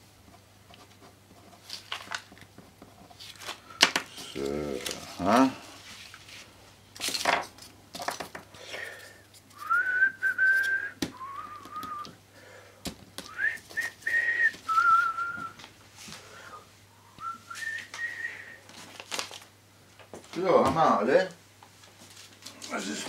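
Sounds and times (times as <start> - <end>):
paper rustling: 0.7 - 9.8, 18.7 - 19.5
person whistling a tune: 9.6 - 12.2, 13.3 - 15.6, 17.2 - 18.6.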